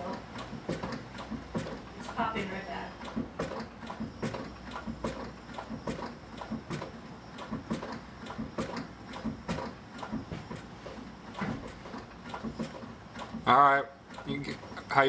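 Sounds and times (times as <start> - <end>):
clutch pedal knocking: 0.1 - 1.9, 3.0 - 10.7, 11.3 - 14.6.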